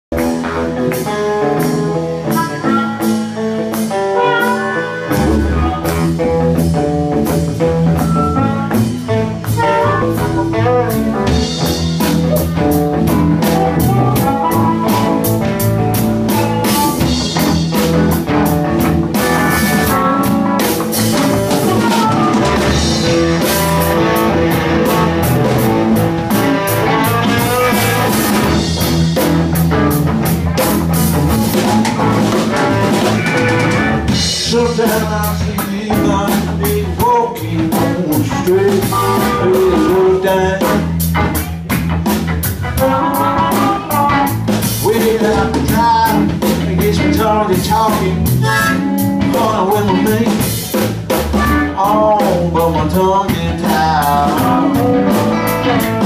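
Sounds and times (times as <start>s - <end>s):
drum kit: 0.1s - 56.0s
electric guitars: 0.1s - 56.0s
deep bass: 5.0s - 56.0s
harmonica: 33.0s - 34.1s, 48.3s - 49.2s.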